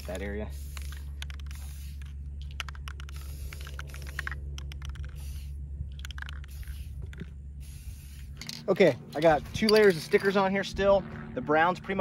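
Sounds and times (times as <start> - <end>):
spray paint can hissing: 0.0 - 8.6
sharp clicks: 0.8 - 5.3, 5.9 - 7.3.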